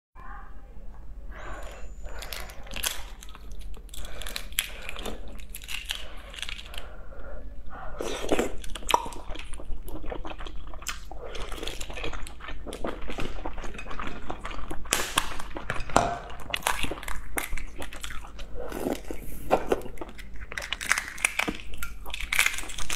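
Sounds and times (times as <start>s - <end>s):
egg shells cracking: 2.1s - 6.8s, 20.0s - 22.9s.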